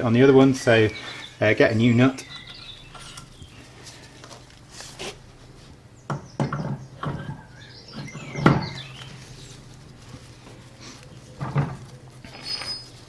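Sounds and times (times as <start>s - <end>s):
knocks and clunks of wheel: 6.1s - 9.0s.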